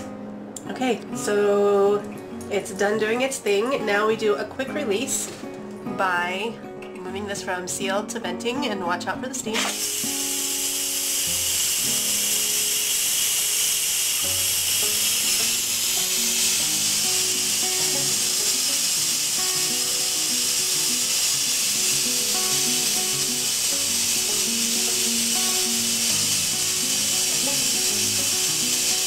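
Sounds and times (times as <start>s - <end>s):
background music: 0.0s - 13.0s, 14.3s - 29.0s
pressure cooker steam hiss: 9.6s - 29.0s.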